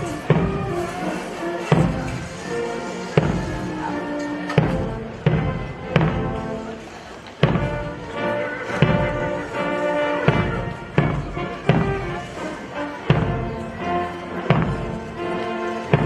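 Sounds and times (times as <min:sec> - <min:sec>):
heavy drum beats: 0:00.0 - 0:15.2
brass band playing a march: 0:00.0 - 0:16.0.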